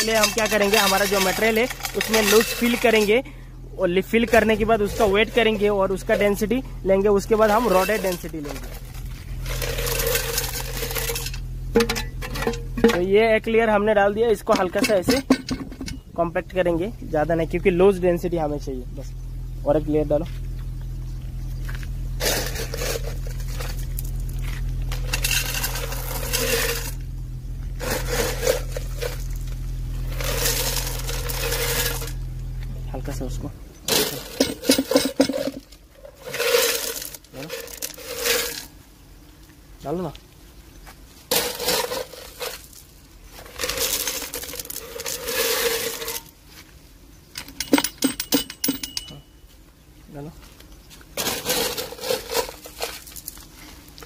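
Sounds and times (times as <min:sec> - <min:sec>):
stones clattering against metal: 0:00.0 - 0:03.2, 0:07.2 - 0:13.3, 0:14.3 - 0:16.1, 0:21.6 - 0:27.1, 0:27.7 - 0:38.8, 0:41.3 - 0:46.4, 0:47.3 - 0:49.3, 0:51.2 - 0:53.5
stones clinking: 0:00.0 - 0:03.2, 0:27.7 - 0:32.8
low hum: 0:00.0 - 0:50.1.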